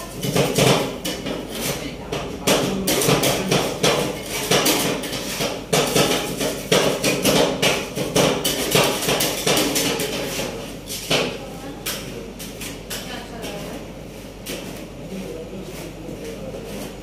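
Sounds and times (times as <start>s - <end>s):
metal spatulas clacking on metal plate: 0.1s - 10.5s.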